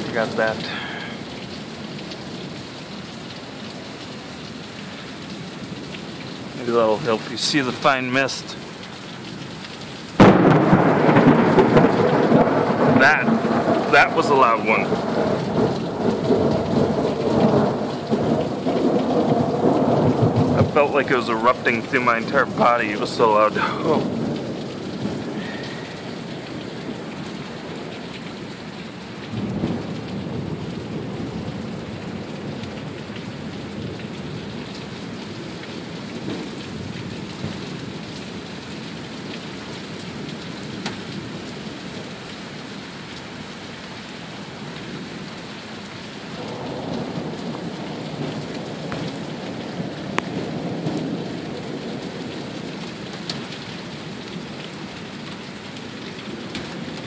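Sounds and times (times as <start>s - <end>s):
heavy rain pouring: 0.0s - 57.0s
thunder rumbling: 10.2s - 28.0s, 29.2s - 38.4s, 46.4s - 53.5s.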